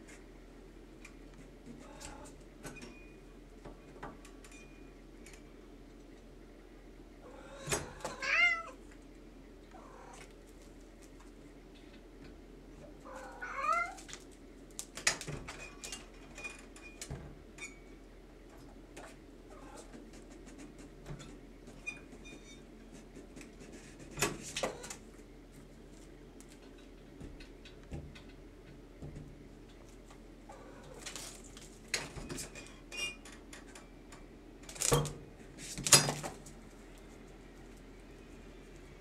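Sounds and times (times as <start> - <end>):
cat meowing: 7.3 - 8.8, 13.0 - 14.0.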